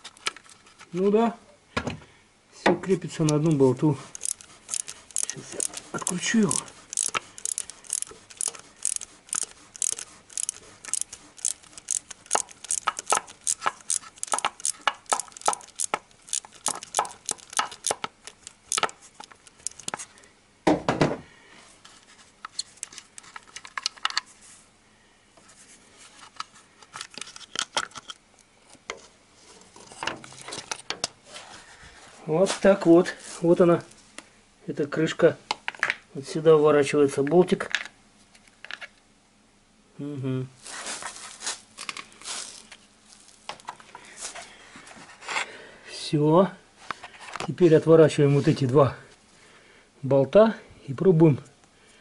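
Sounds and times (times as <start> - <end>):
ratchet wrench clicking: 4.0 - 20.0.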